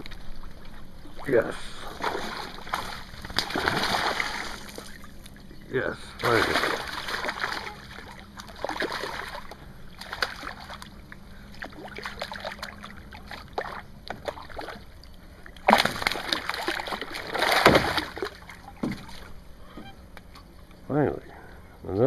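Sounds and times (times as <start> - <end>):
fish thrashing and splashing: 0.0 - 5.4, 6.1 - 19.4.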